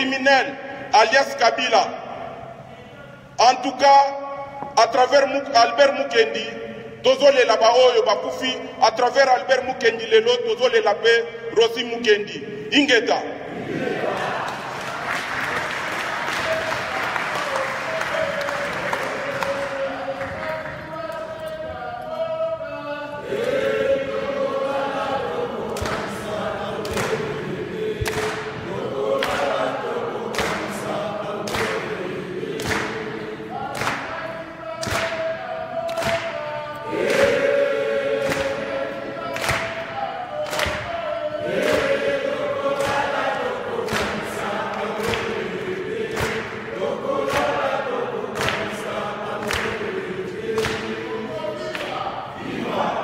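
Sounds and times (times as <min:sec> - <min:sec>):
crowd singing in unison: 0:13.4 - 0:53.0.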